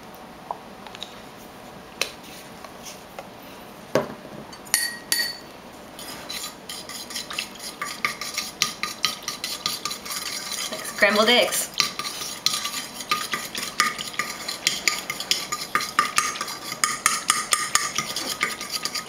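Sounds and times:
fork clinking against ceramic bowl: 0:04.6 - 0:05.4, 0:06.7 - 0:10.6, 0:11.8 - 0:19.0
fork tapping and scraping bowl: 0:06.0 - 0:19.0.

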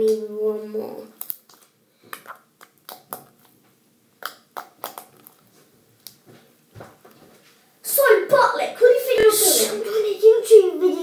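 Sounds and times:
slime clicking and popping: 0:01.2 - 0:03.5, 0:04.2 - 0:05.4.

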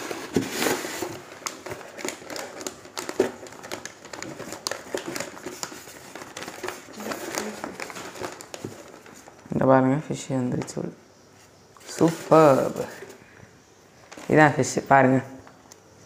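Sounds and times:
newspaper crinkling and rustling: 0:00.0 - 0:09.7, 0:11.8 - 0:13.3.

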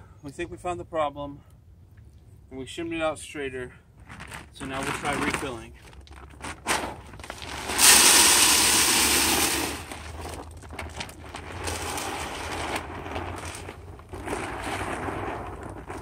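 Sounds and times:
corn kernels pouring into hopper: 0:07.3 - 0:16.0.

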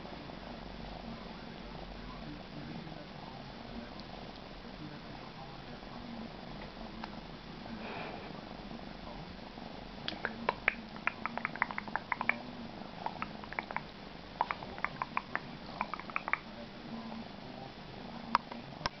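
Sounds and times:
kitten purring: 0:10.1 - 0:16.6.

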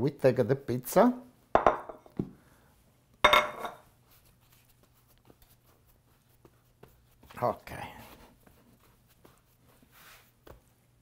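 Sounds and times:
kitchenware knocking on wooden table: 0:01.6 - 0:02.3.

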